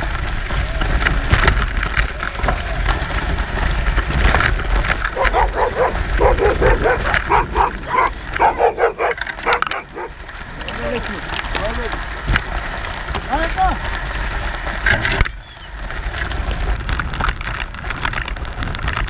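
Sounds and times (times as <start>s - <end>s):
low rumble: 0.0s - 19.0s
dog barking: 5.2s - 10.2s.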